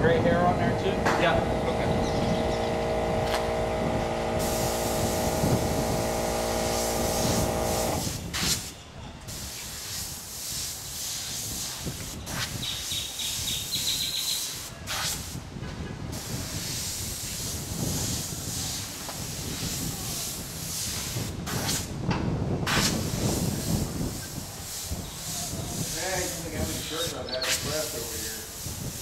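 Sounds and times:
air compressor humming: 0:00.0 - 0:29.0
airbrush hissing: 0:04.4 - 0:08.7, 0:09.3 - 0:15.4, 0:16.2 - 0:21.9, 0:22.7 - 0:29.0.

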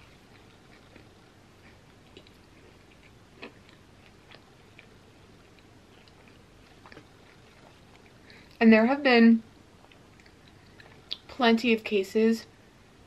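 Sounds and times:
closed-mouth chewing: 0:00.0 - 0:08.6, 0:09.8 - 0:11.3.

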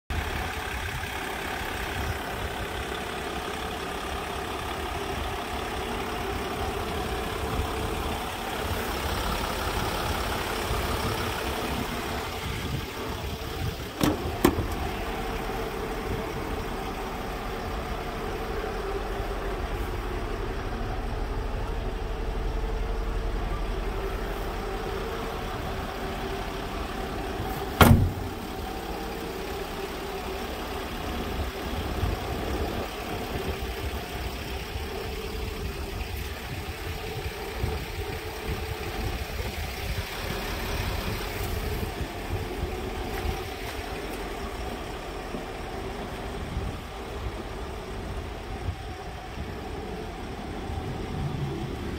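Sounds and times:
diesel engine idling: 0:00.1 - 0:51.9
door shutting thud: 0:14.0 - 0:14.9, 0:27.7 - 0:28.4
door latch clicking: 0:27.8 - 0:28.2.

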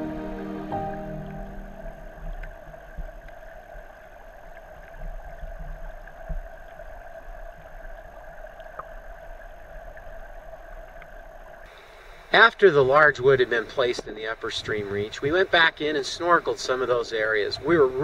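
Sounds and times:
underwater stream rushing: 0:00.0 - 0:18.0
small clicks underwater: 0:02.1 - 0:11.7, 0:13.8 - 0:14.3.

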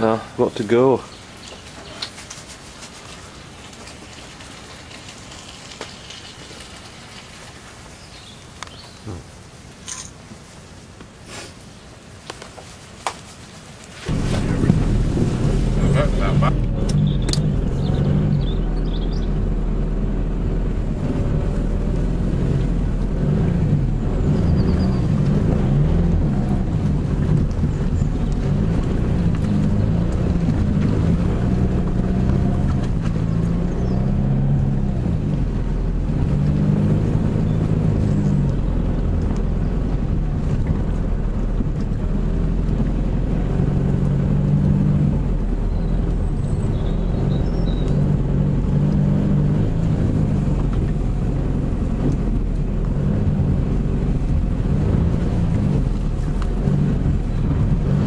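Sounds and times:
car engine hum: 0:14.0 - 0:58.0
car rumbling on dirt track: 0:14.0 - 0:58.0.

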